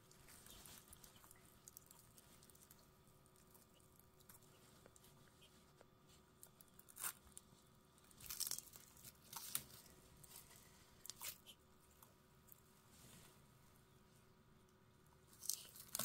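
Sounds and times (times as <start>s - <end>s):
tortoise tearing leafy greens: 0.0s - 11.6s, 15.3s - 16.0s.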